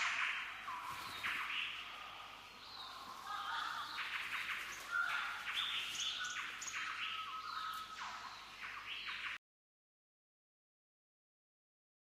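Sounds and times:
birds chirping: 0.0s - 9.4s.

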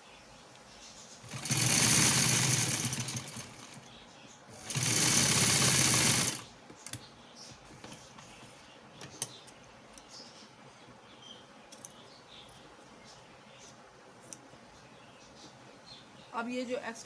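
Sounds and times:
sewing machine stitching: 1.2s - 3.8s, 4.5s - 6.5s.

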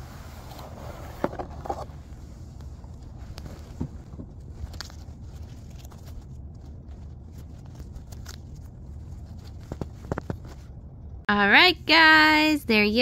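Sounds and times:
low steady rumble: 0.0s - 13.0s
hands rustling packaging: 2.1s - 10.8s.

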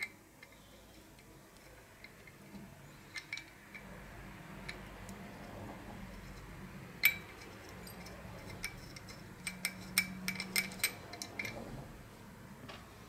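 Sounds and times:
bicycle bell parts clicking: 7.0s - 11.6s.

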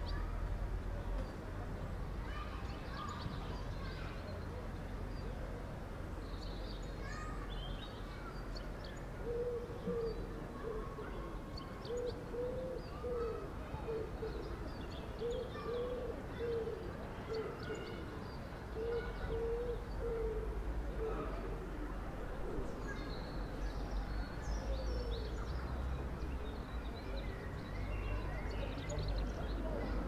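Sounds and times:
pigeon cooing: 12.0s - 14.5s, 18.8s - 21.6s.

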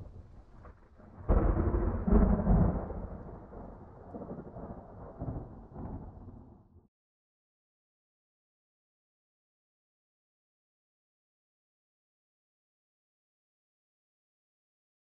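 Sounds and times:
thunder crack and rumble: 0.0s - 6.9s.

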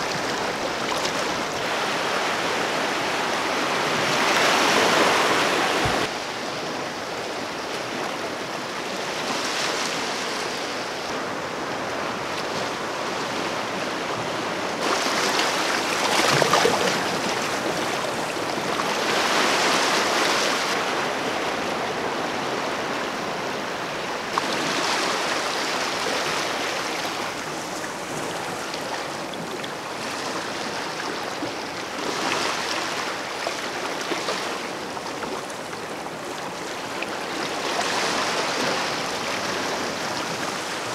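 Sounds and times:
waves washing over rocks: 0.0s - 6.8s, 9.2s - 21.6s.

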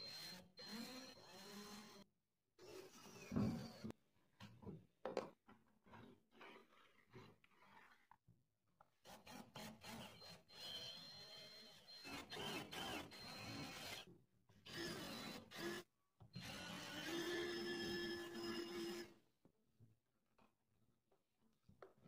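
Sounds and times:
cordless drill boring into wood: 0.0s - 2.0s, 9.1s - 14.1s, 14.7s - 19.1s.

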